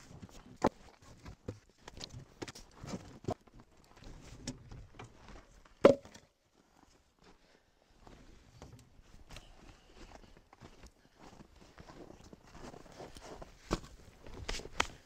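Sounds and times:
firewood knocking and thudding: 5.8 - 6.2
footsteps in snow: 9.3 - 14.8.

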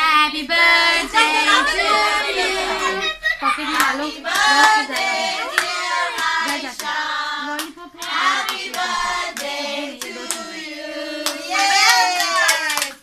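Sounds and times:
children singing: 0.0 - 11.8
hand claps: 11.2 - 13.0.

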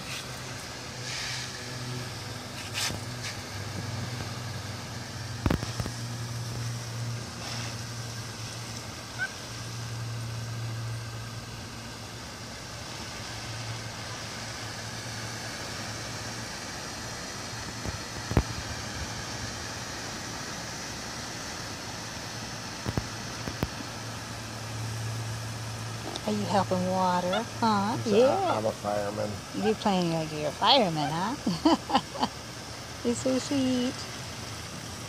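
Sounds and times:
hose nozzle spraying water: 0.0 - 28.0
low motor-like hum: 0.0 - 35.0.

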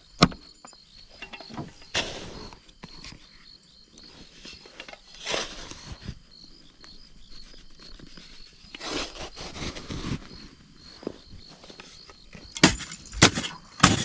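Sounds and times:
crickets chirping: 0.0 - 14.0
hand shovel digging dry soil: 1.3 - 3.2, 4.1 - 6.2, 7.4 - 10.7, 11.6 - 14.0.

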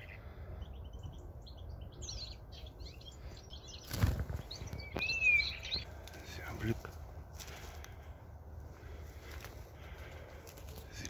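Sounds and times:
bird call rising and falling: 0.0 - 6.0
small songbirds chirping: 0.0 - 11.0
wings fluttering: 3.8 - 8.0, 8.8 - 11.0.

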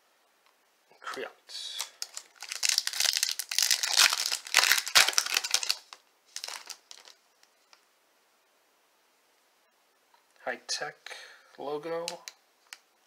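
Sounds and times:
packaging crinkling: 1.7 - 7.8.

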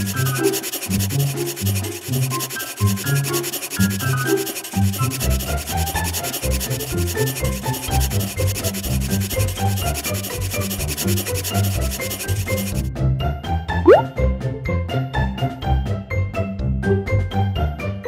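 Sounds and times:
marker scratching on paper: 0.0 - 12.9.

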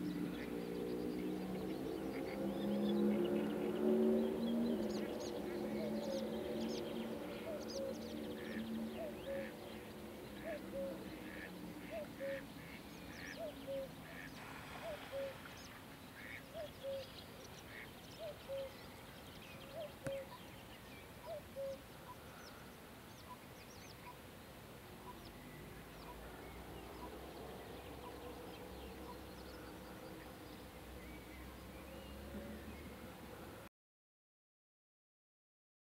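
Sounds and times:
faint soft ticks: 20.0 - 20.2.

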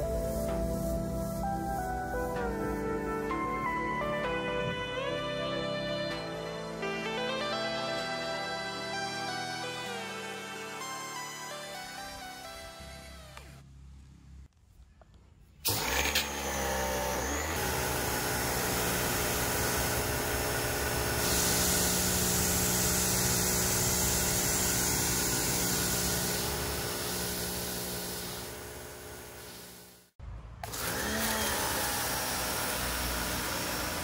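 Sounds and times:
spraying water hiss: 0.0 - 3.1, 17.6 - 30.1
pressure washer motor running: 15.7 - 34.0.

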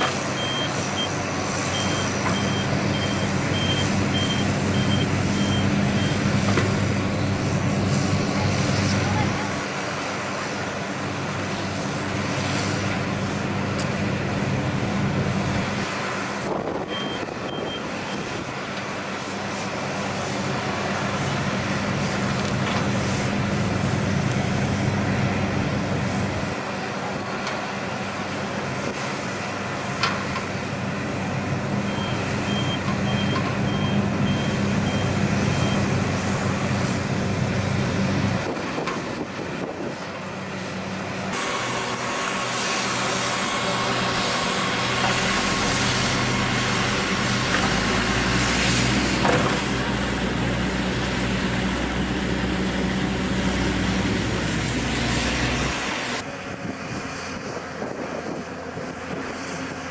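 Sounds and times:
diesel engines running under load: 0.0 - 59.9
reversing alarm beeps: 0.4 - 6.2, 16.9 - 18.3, 31.9 - 35.9.

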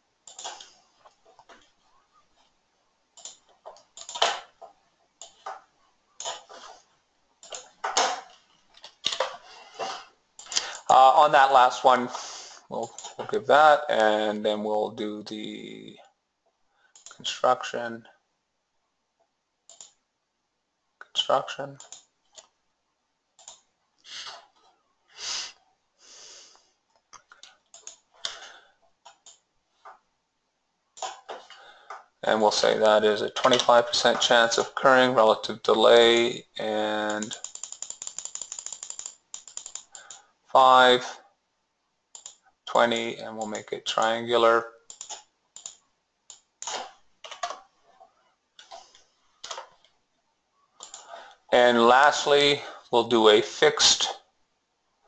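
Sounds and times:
computer mouse clicks: 0.2 - 1.2, 3.2 - 4.5, 5.2 - 5.6, 7.4 - 7.7, 12.8 - 13.2, 16.9 - 17.2, 19.7 - 20.0, 21.8 - 22.6, 23.4 - 24.4, 26.9 - 28.4, 29.0 - 29.4, 37.0 - 40.2, 42.1 - 43.6, 44.9 - 47.6, 50.8 - 51.1
person breathing into microphone: 12.1 - 12.7.

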